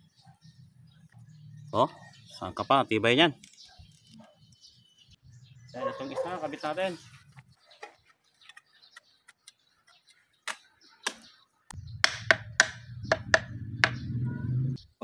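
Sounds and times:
low steady rumble: 0:11.8 - 0:14.8.

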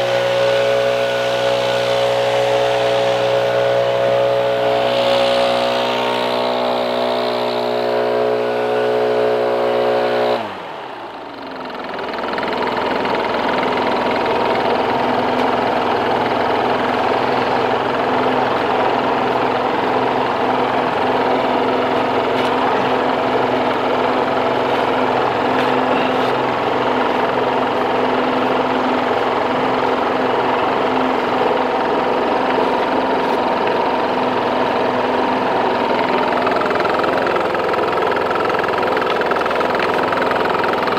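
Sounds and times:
small engine running: 0:00.0 - 0:40.9.

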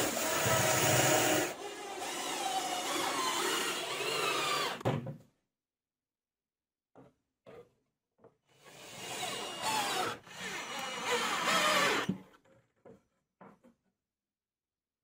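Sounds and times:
cordless drill motor whirring: 0:00.0 - 0:04.8, 0:08.9 - 0:12.2.

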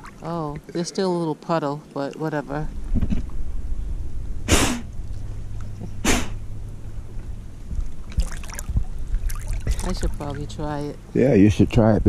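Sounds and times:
steady low rumble: 0:00.0 - 0:12.0
breath puffs through snorkel: 0:04.5 - 0:04.9, 0:06.0 - 0:06.4.

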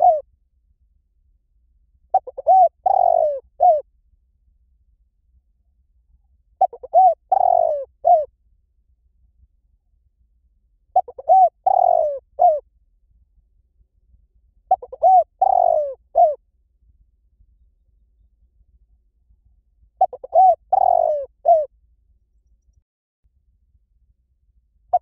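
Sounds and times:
dove cooing: 0:00.0 - 0:00.2, 0:02.1 - 0:03.8, 0:06.6 - 0:08.3, 0:11.0 - 0:12.6, 0:14.7 - 0:16.4, 0:20.0 - 0:21.7.

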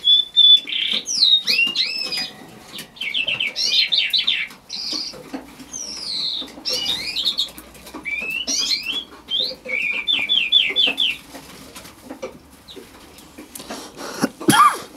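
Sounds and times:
skylark singing: 0:00.0 - 0:11.3.

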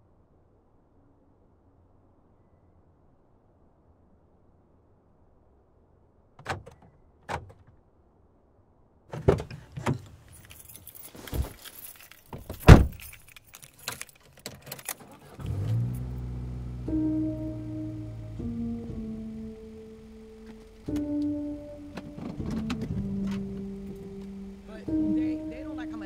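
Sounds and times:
low sustained music notes: 0:15.4 - 0:26.0
sharp clicks and knocks: 0:20.4 - 0:24.3.

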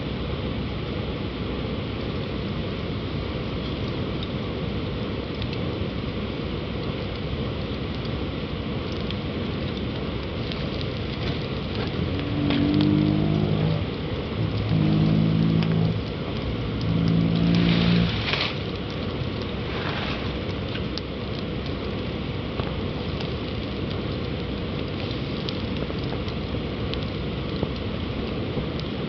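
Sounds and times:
steady rushing noise: 0:00.0 - 0:29.0
crackles and ticks: 0:02.0 - 0:29.0
low humming tone: 0:09.7 - 0:22.3.

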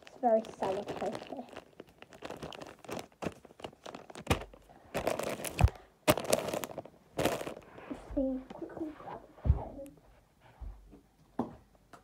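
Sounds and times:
wrapping paper crinkling: 0:00.0 - 0:07.9.

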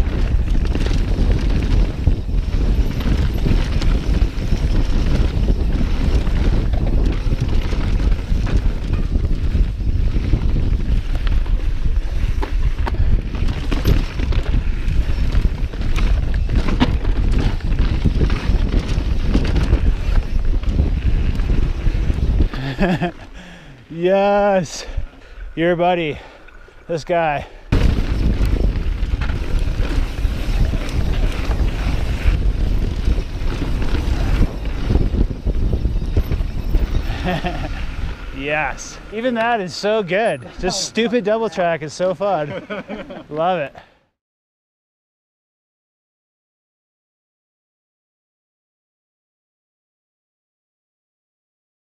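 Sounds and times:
bike clicks and rattles over rocks: 0:00.0 - 0:23.8, 0:27.7 - 0:40.8
wind rumble on microphone: 0:00.0 - 0:26.3, 0:27.6 - 0:41.5.

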